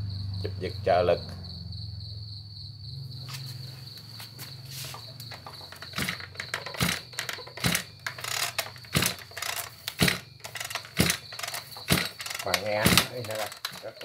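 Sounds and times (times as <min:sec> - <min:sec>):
brushcutter recoil starter pulled: 0:05.4 - 0:14.0.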